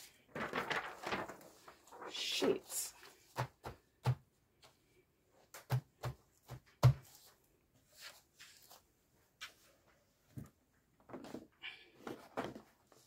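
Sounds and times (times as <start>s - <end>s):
soft rustles: 7.1s - 10.6s.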